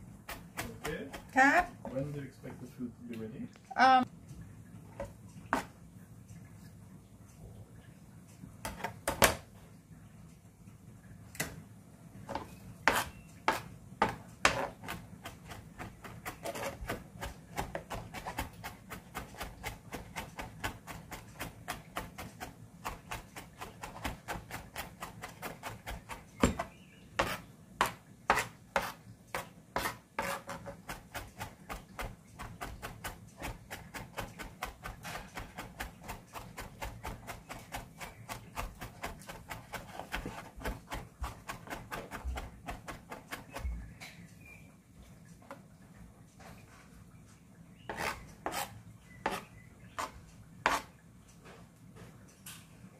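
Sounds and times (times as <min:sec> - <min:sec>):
knife chopping on cutting board: 0:00.3 - 0:01.7, 0:12.3 - 0:43.7.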